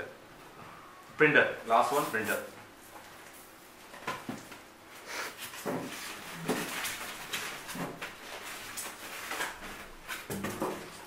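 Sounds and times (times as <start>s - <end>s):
plastic wrapping rustling: 1.7s - 4.6s, 5.4s - 11.0s.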